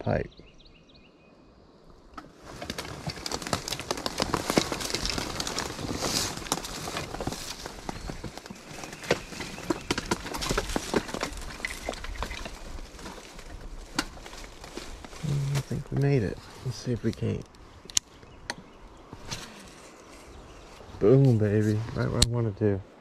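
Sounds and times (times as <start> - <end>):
wheels crushing twigs: 2.2 - 17.4.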